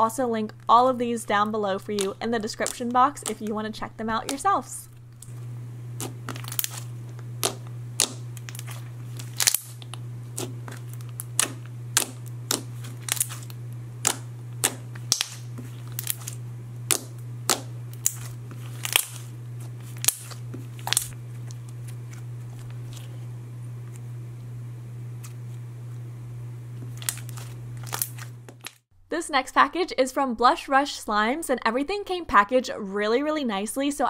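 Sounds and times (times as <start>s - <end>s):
steady low hum: 0.0s - 28.8s
slime squishing and popping: 6.0s - 19.3s, 19.9s - 21.1s.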